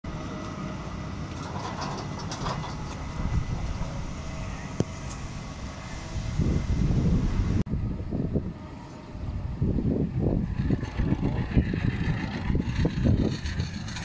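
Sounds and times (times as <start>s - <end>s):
steady low rumble: 0.1s - 14.0s
metal clanks and rattles: 1.3s - 3.4s, 10.5s - 14.0s.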